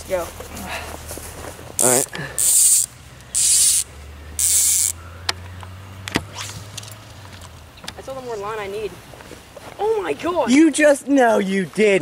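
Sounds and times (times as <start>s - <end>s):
fly reel ratchet buzzing: 1.8s - 7.2s.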